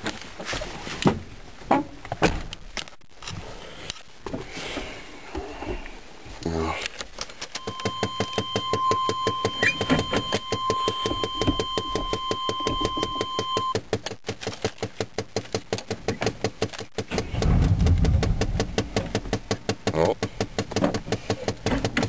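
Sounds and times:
electronic warning tone: 0:07.6 - 0:13.8.

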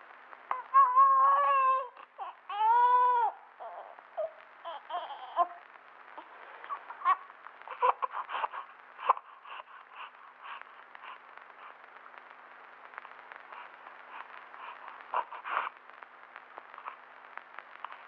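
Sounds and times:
baby whimpering: 0:00.5 - 0:05.6
newborn baby crying: 0:00.5 - 0:05.6, 0:06.6 - 0:10.7, 0:14.6 - 0:15.7
baby mouth and breathing sounds: 0:13.5 - 0:15.8.

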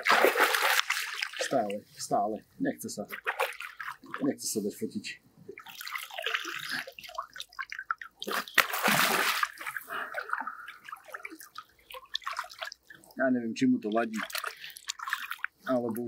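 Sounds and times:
fish thrashing in water: 0:00.0 - 0:01.6, 0:03.1 - 0:04.4, 0:05.5 - 0:13.2, 0:14.0 - 0:15.6
rush of water: 0:08.2 - 0:12.7.

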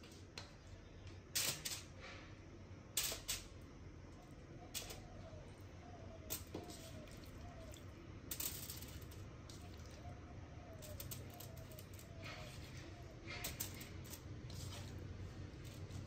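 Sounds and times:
aluminium foil crinkling: 0:10.8 - 0:16.0.

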